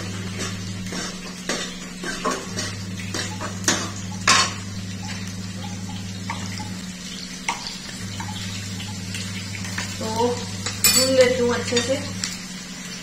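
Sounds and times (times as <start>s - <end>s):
metal spoon scraping a pan: 0.0s - 4.5s
low hum: 2.5s - 7.2s.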